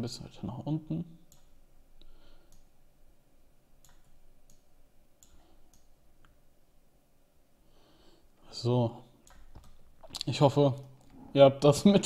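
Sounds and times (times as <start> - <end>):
low room noise: 0.0 - 12.0
computer mouse clicks: 1.3 - 1.6, 2.5 - 2.7, 3.8 - 6.4, 9.2 - 9.8.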